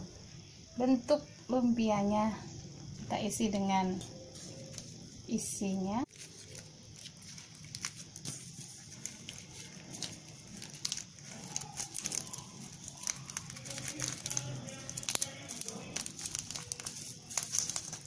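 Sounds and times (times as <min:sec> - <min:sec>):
wrapper rustling and crinkling: 0:04.3 - 0:05.1, 0:06.0 - 0:18.0.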